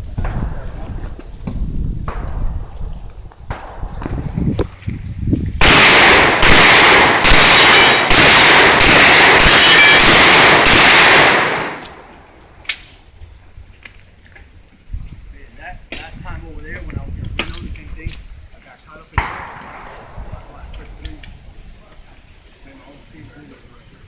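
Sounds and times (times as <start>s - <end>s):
loud ringing gunshots: 5.6s - 12.0s, 19.2s - 20.2s.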